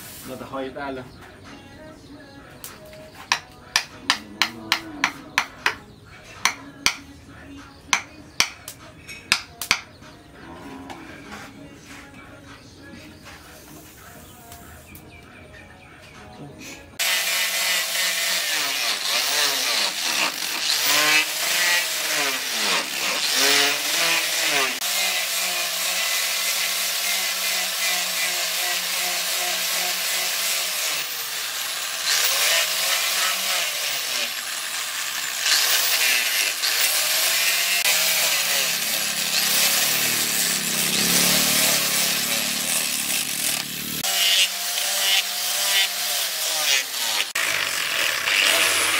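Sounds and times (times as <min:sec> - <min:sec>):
angle grinder sanding wood: 0:17.0 - 0:48.9.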